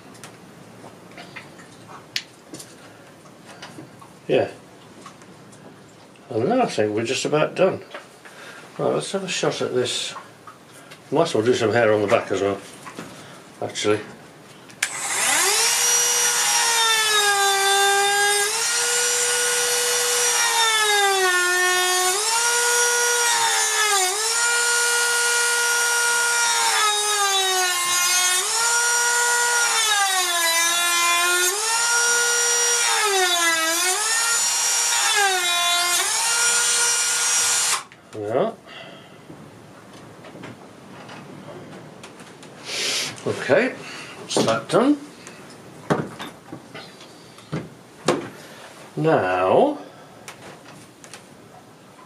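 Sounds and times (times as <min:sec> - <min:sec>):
rotary tool cutting wood: 0:14.8 - 0:37.9.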